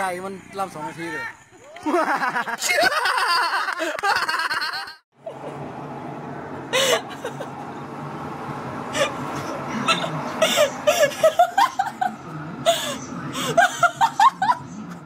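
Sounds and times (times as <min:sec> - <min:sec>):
people laughing hard: 0:01.8 - 0:05.4, 0:06.8 - 0:07.6, 0:09.8 - 0:14.7
steady low hum: 0:05.2 - 0:15.0.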